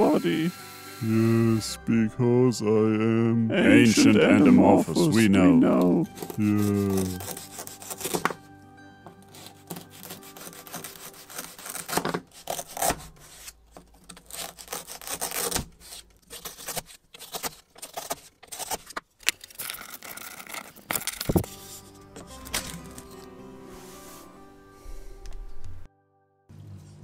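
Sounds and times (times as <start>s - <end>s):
wood rasping on wood: 5.7s - 8.4s, 9.1s - 19.0s
wooden slices knocking: 6.1s - 8.4s.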